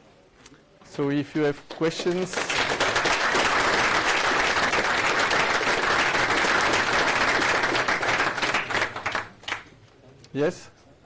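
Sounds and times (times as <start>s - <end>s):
audience applauding: 1.5s - 9.7s.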